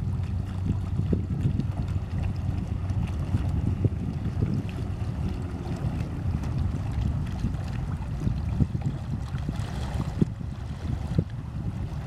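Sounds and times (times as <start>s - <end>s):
boat engine hum: 0.0s - 12.0s
wind buffeting microphone: 0.0s - 12.0s.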